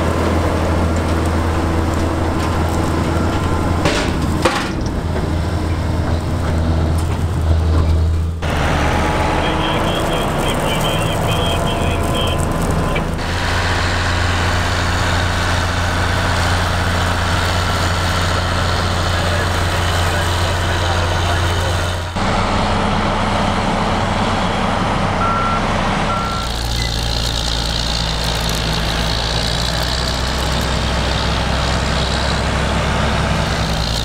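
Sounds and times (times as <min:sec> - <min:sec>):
tractor diesel engine running: 0:00.0 - 0:34.0
short high-pitched beeps: 0:25.2 - 0:27.0.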